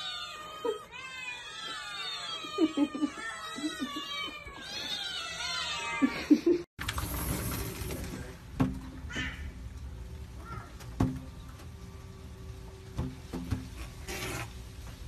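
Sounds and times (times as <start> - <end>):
kittens mewing: 0.0 - 6.3
low steady rumbling: 6.9 - 15.0.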